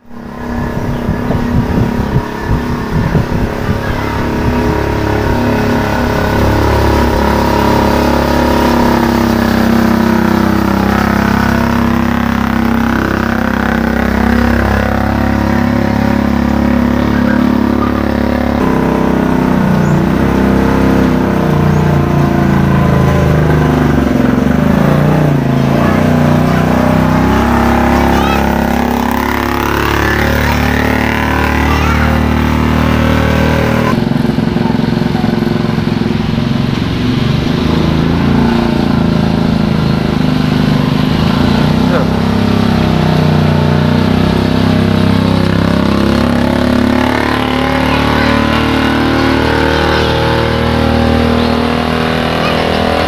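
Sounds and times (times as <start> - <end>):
scooter engine running: 0.0 - 53.0.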